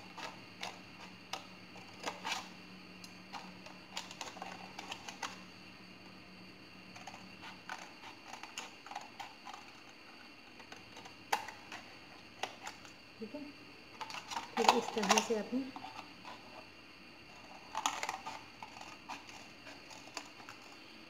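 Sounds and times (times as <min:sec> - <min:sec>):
scissors cutting plastic bottle: 0:14.0 - 0:16.0.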